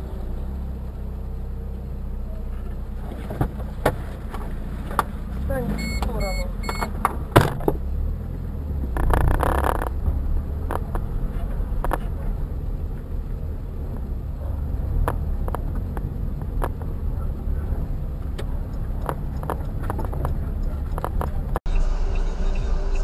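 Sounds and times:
car road and engine rumble: 0:00.0 - 0:23.0
sharp clicks and rattles: 0:08.9 - 0:12.2, 0:18.2 - 0:21.6.

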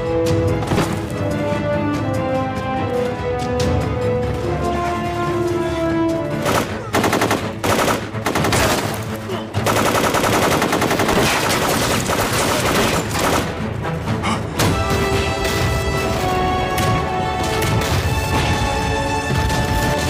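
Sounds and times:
background music: 0:00.0 - 0:20.0
automatic gunfire: 0:06.4 - 0:13.6.

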